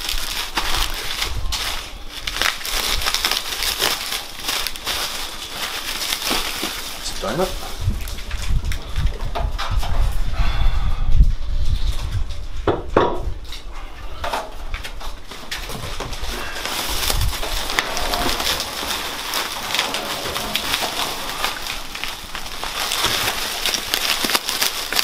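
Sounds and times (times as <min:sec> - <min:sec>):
bubble wrap crinkling: 0:00.0 - 0:09.3, 0:14.8 - 0:25.0.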